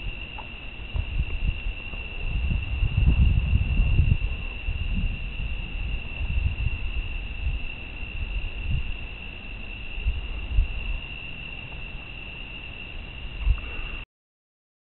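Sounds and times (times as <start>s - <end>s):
low rumbling thumps: 0.0s - 9.1s
insect trilling: 0.0s - 14.0s.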